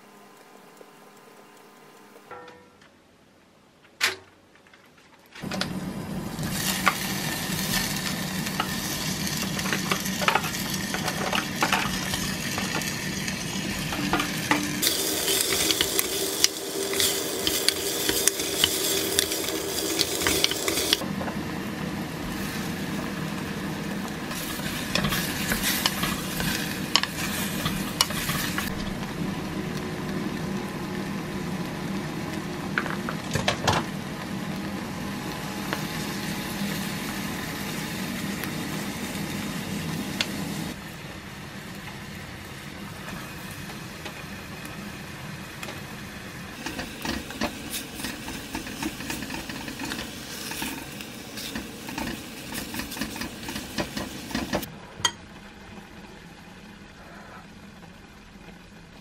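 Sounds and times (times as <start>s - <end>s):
vegetables sizzling in a pot: 5.4s - 59.0s
wooden spatula scraping a pot: 24.3s - 28.7s.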